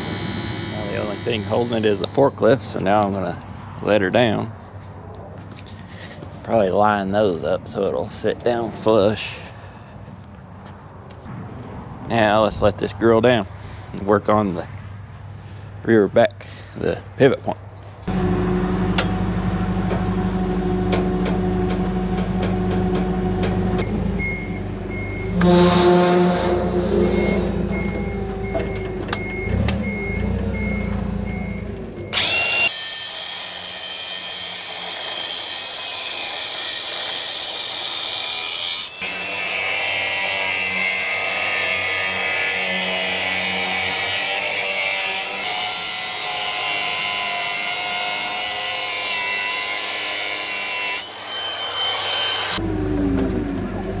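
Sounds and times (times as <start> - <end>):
forklift engine running: 0.0 - 2.1, 18.1 - 32.3, 52.6 - 54.0
reversing alarm beeping: 0.0 - 2.4, 23.1 - 32.7, 51.0 - 53.8
angle grinder cutting steel: 0.0 - 2.5, 32.1 - 52.6.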